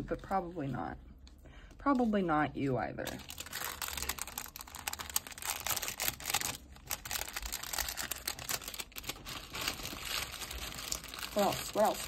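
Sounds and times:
plastic bags crinkling: 3.0s - 12.0s.

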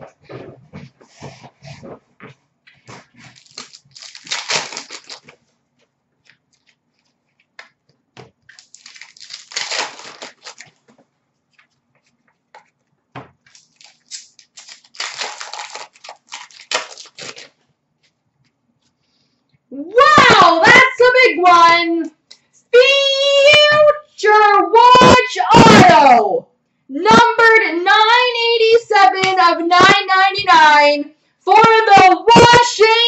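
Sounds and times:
foil wrappers tearing and crinkling: 2.9s - 5.4s, 8.5s - 11.0s, 13.4s - 17.6s.

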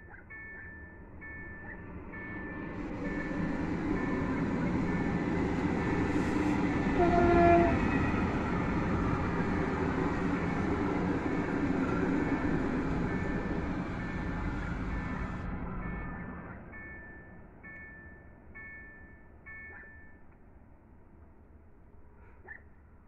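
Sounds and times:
train wheels rumbling on rail: 0.0s - 20.1s
crossing warning signal tone: 0.0s - 20.3s
train horn blast: 6.0s - 8.4s.

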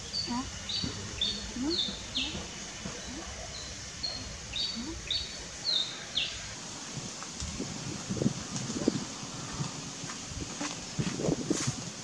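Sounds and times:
birds chirping: 0.0s - 6.6s
outdoor background hiss: 0.0s - 12.0s.

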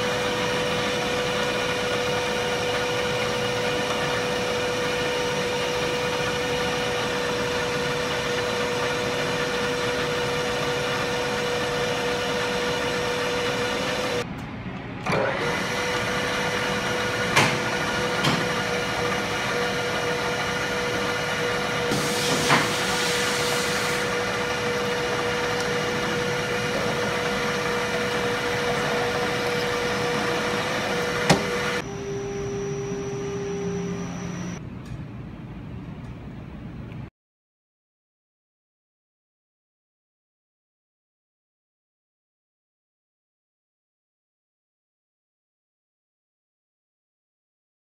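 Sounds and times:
milling machine spindle whine: 0.0s - 14.2s, 15.1s - 34.6s.

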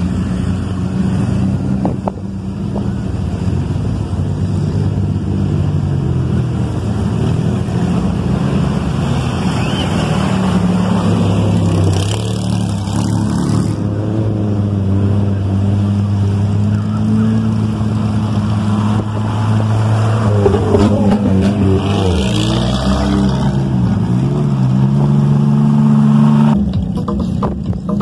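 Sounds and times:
off-road vehicle engine: 0.0s - 28.0s
water splashing: 5.6s - 13.8s, 14.8s - 25.9s.

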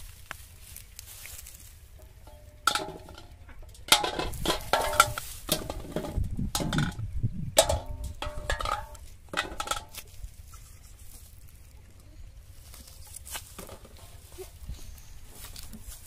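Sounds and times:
plastic bottles clattering in metal bowl: 2.1s - 7.0s, 7.6s - 10.0s.

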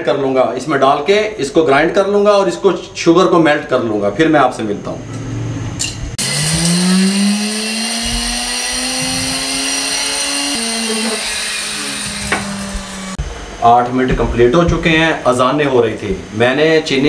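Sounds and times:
electric grinder whine: 6.2s - 13.2s.

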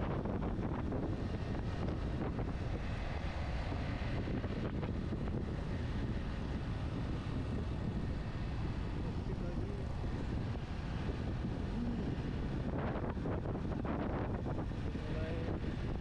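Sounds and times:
road noise: 0.0s - 16.0s
wind rushing over microphone: 0.0s - 16.0s.

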